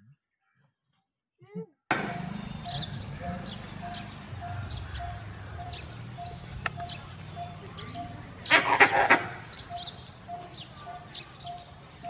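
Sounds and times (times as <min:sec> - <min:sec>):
birds chirping: 0:01.9 - 0:12.0
loud animal calls: 0:07.4 - 0:11.6.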